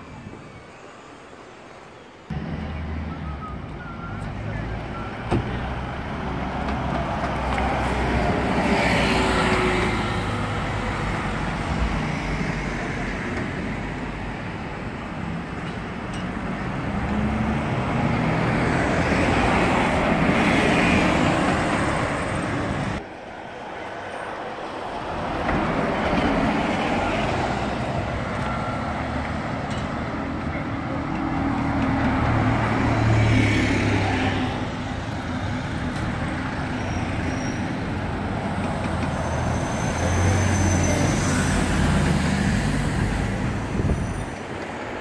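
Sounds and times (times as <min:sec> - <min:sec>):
buses passing: 0:00.0 - 0:45.0.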